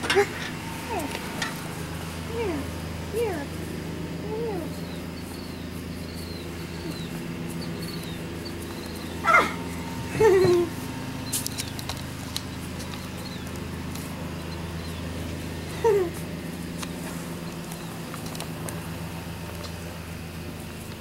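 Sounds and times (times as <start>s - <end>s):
puppy yelping: 6.2s - 10.8s.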